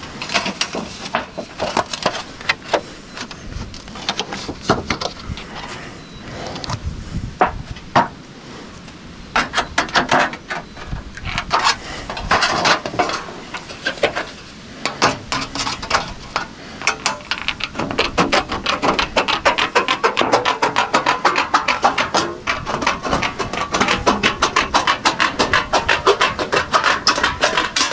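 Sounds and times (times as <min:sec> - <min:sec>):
metal sheet rattling: 0:00.0 - 0:05.9, 0:09.4 - 0:27.9.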